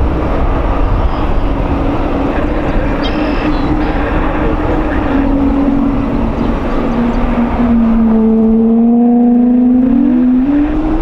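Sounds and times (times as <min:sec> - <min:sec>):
jet engine howl: 0:00.0 - 0:11.0.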